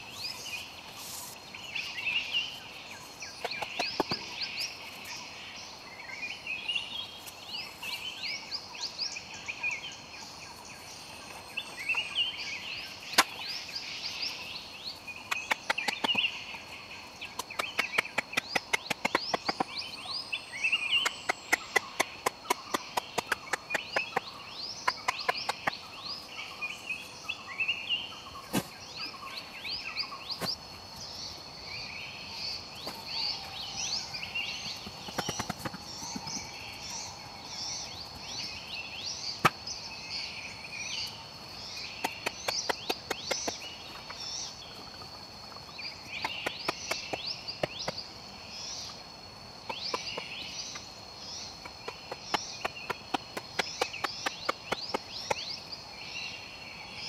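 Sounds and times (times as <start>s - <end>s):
high insect tone: 0.0s - 57.0s
wooden knocks of stakes: 3.4s - 4.3s, 17.3s - 19.7s, 21.0s - 24.3s, 34.6s - 36.5s.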